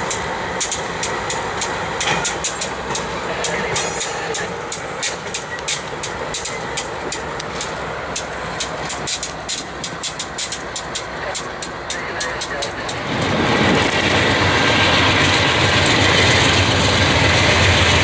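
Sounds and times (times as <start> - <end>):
diesel locomotive engines: 0.0 - 18.0
train wheels on rails: 0.0 - 18.0
sharp clicks: 0.1 - 13.3.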